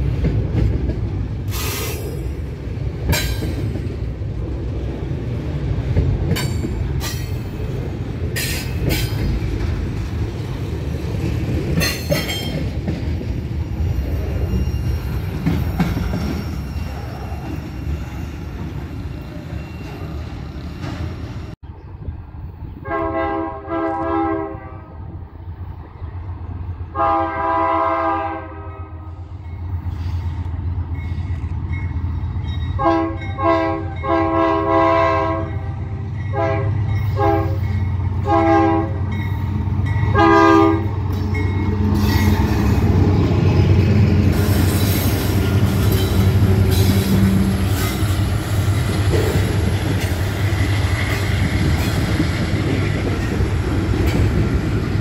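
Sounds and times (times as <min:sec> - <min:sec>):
train wheels clattering and squealing: 0:00.0 - 0:04.0, 0:06.0 - 0:10.5, 0:11.2 - 0:21.6, 0:29.4 - 0:34.2, 0:39.0 - 0:55.0
locomotive air horn blasts: 0:22.8 - 0:25.0, 0:26.9 - 0:29.2, 0:32.8 - 0:35.7, 0:36.3 - 0:37.6, 0:38.2 - 0:39.0, 0:40.1 - 0:40.9.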